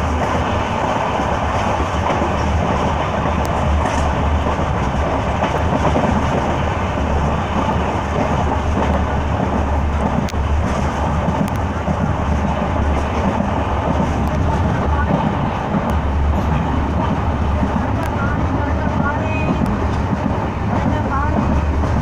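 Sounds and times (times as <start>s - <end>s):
train wheels rumbling on track: 0.0s - 22.0s.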